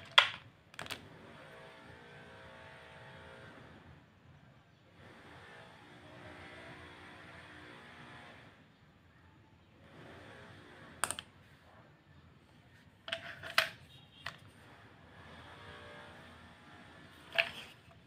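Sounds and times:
plastic clicks and knocks: 0.0 - 1.0, 11.0 - 11.3.

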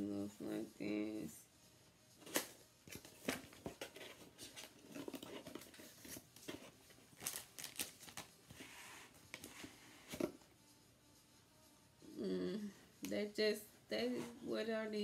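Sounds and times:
packaging rustling and crinkling: 2.2 - 10.3.

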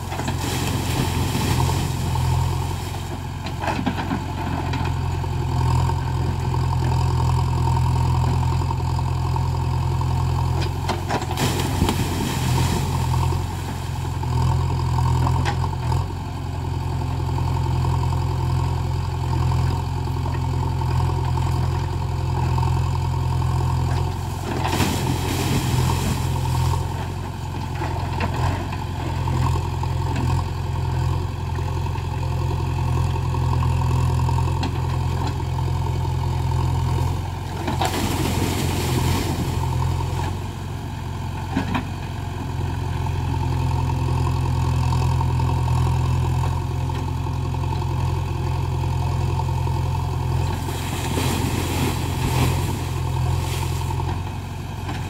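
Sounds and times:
soil falling into well: 0.0 - 5.1, 10.7 - 15.9, 23.6 - 30.4, 37.6 - 40.6, 50.3 - 55.0
diesel engine running: 0.0 - 55.0.

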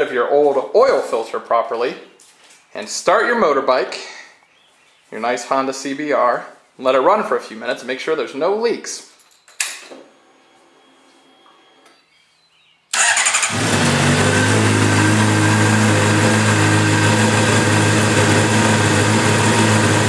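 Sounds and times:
motorcycle engine starting and idling: 12.9 - 20.0.

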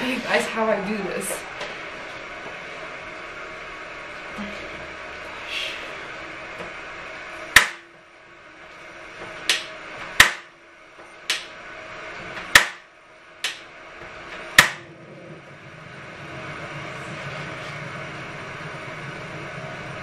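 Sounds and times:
gas stove igniter clicking: 11.3 - 11.5.

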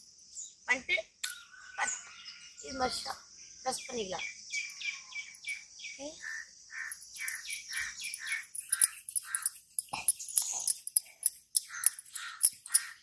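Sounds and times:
high-pitched insect drone: 6.8 - 13.0.

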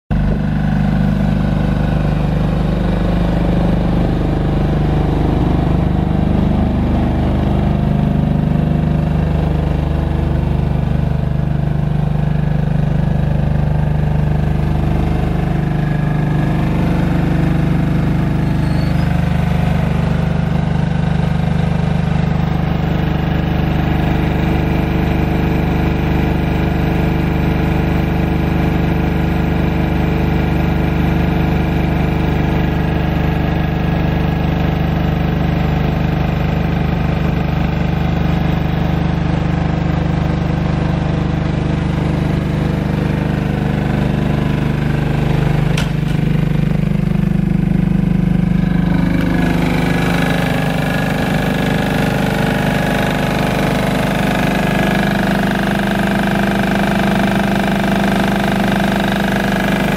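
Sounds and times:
diesel engine running: 0.1 - 59.9.

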